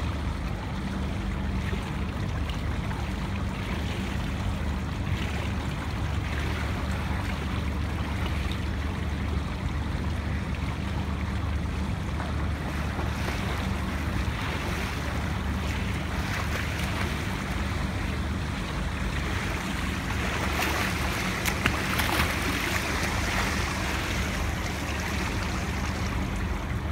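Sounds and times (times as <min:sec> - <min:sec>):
pool water splashing: 0:00.0 - 0:26.9
steady low rumble: 0:00.0 - 0:26.9.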